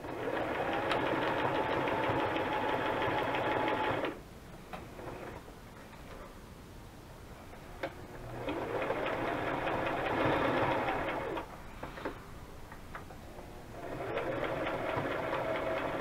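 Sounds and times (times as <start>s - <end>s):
electric sewing machine stitching: 0.0s - 4.2s, 8.1s - 11.5s, 13.7s - 16.0s.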